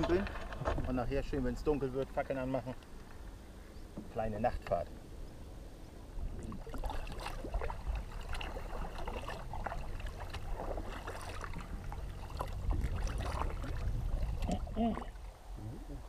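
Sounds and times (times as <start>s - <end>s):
paddles splashing: 6.1s - 15.6s
low rumble: 7.5s - 16.0s.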